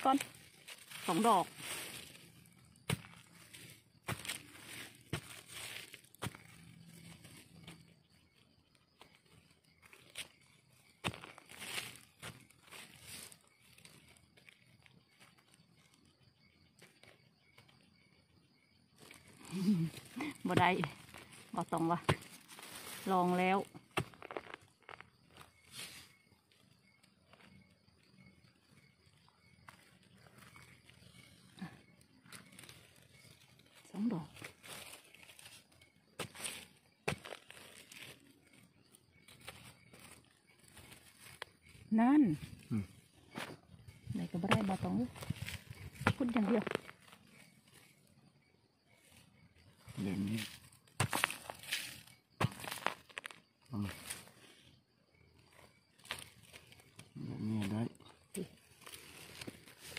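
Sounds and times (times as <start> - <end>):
fingers scraping dry grass: 0.0 - 7.9, 9.8 - 15.4, 19.9 - 26.2, 32.3 - 38.6, 50.2 - 53.4
fingers scratching dry soil: 0.0 - 8.0, 50.0 - 54.5
digging tool knocking ground: 2.8 - 7.4, 11.0 - 13.1, 20.2 - 25.4, 36.2 - 38.1, 44.4 - 47.0, 50.3 - 53.4.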